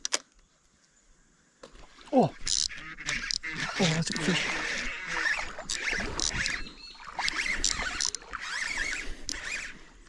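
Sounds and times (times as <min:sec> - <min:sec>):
water splashing around kayak: 0:01.6 - 0:10.0
high squeaky chirps: 0:05.0 - 0:09.8
sharp clicks: 0:05.4 - 0:09.8.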